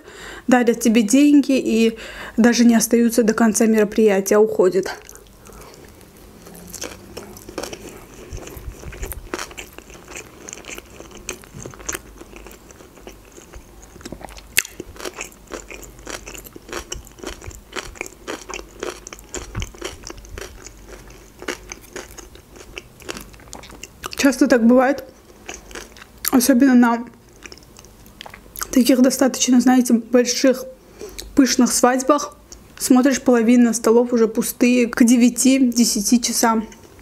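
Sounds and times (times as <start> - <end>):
person chewing: 5.0 - 24.3, 25.0 - 26.4, 27.2 - 28.8.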